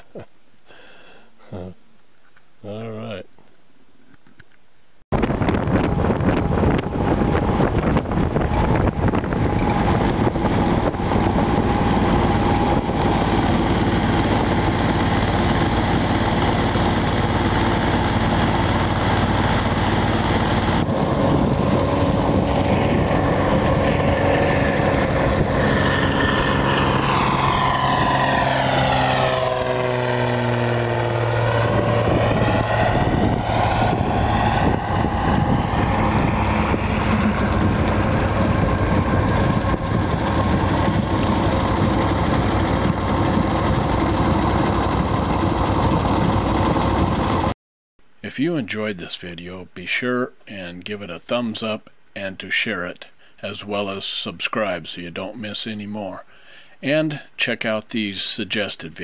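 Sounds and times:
floatplane droning overhead: 5.2 - 47.5, 52.3 - 59.0
outboard motor running: 7.4 - 34.5, 35.4 - 47.5.

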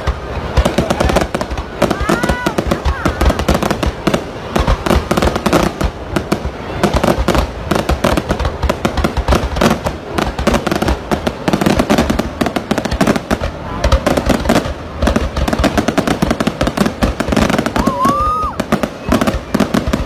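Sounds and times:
fireworks bangs and crackles: 0.0 - 20.0.

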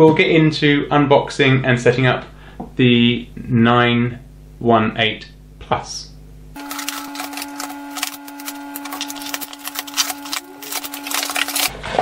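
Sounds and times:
steady hum: 0.2 - 12.0
cardboard scraping and rustling: 6.6 - 12.0.

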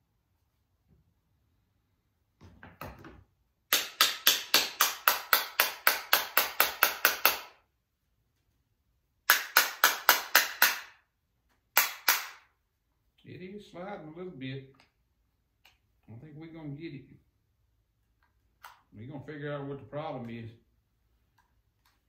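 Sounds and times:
rapid sharp knocks: 3.7 - 7.6, 9.3 - 11.0.

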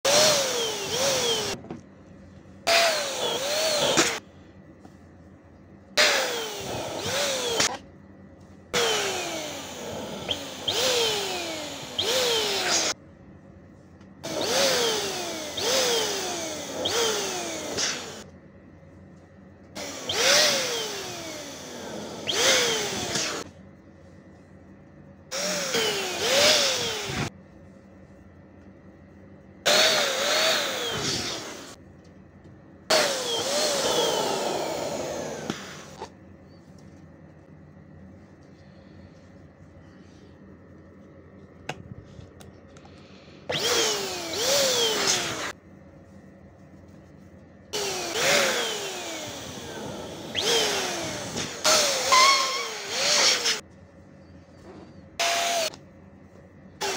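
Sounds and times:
electric balloon pump whining: 0.0 - 1.6, 8.8 - 13.0, 19.8 - 23.5, 25.3 - 27.3, 32.9 - 36.1, 43.5 - 45.6, 47.8 - 53.6, 55.2 - 55.8.

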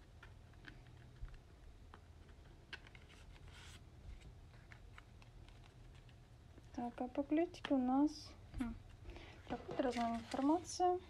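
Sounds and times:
paper envelope rustling: 0.4 - 6.3, 9.2 - 10.9.

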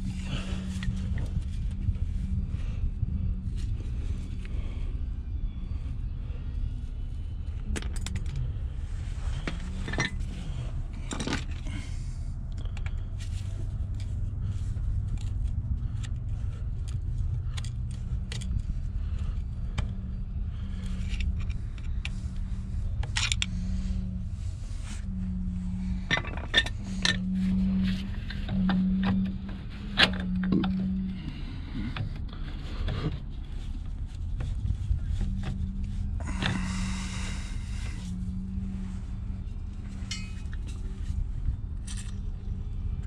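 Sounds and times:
low machine hum: 0.0 - 43.0
metal tools clinking and scraping: 9.2 - 12.0, 39.8 - 42.7.

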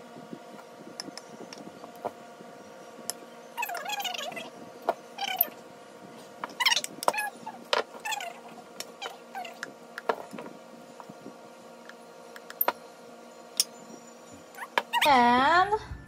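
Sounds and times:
pet whining: 3.6 - 4.5, 5.2 - 5.6, 6.5 - 9.7, 14.3 - 15.2.

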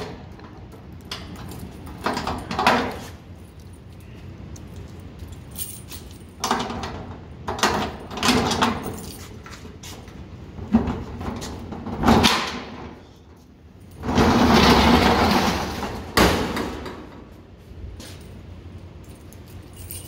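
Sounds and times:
metal door rattling: 0.0 - 3.1, 5.8 - 9.1, 10.6 - 13.0, 14.0 - 17.3.

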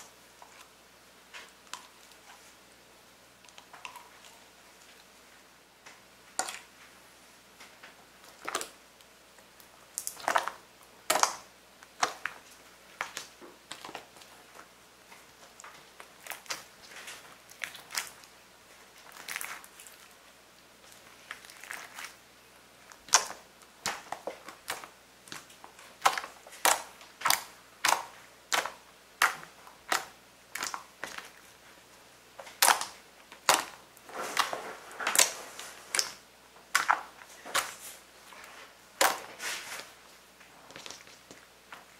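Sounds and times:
slime popping and clicking: 32.4 - 33.8.

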